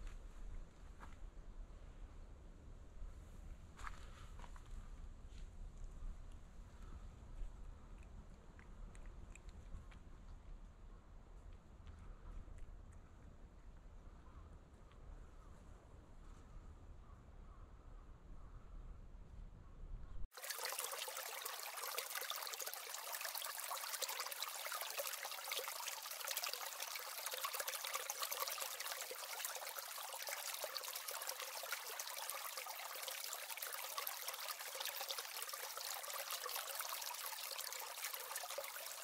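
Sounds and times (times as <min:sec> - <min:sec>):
trickling rushing water: 0:20.3 - 0:39.0.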